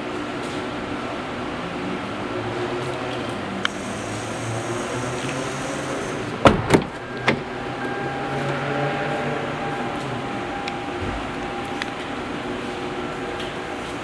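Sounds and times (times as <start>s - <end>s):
indoor hum: 3.2s - 14.0s.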